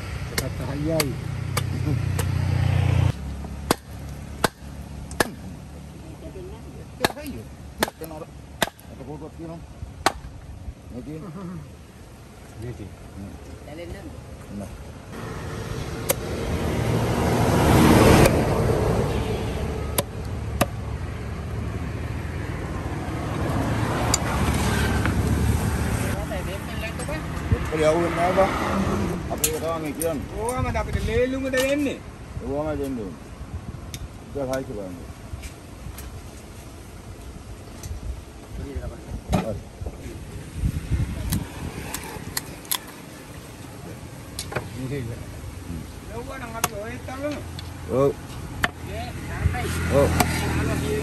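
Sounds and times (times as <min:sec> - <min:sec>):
road traffic rumble: 0:00.0 - 0:51.0
cleaver knocking on wooden block: 0:48.6 - 0:48.8.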